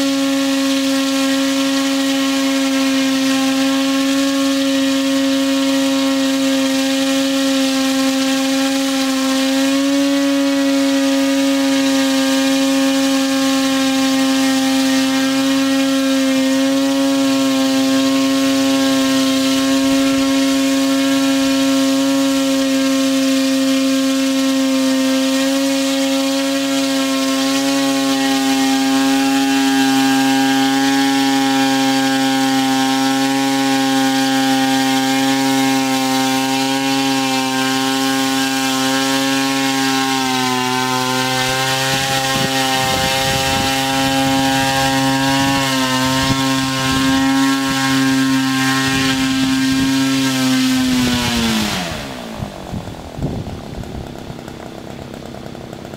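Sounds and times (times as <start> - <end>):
drone propellers buzzing: 0.0 - 55.9.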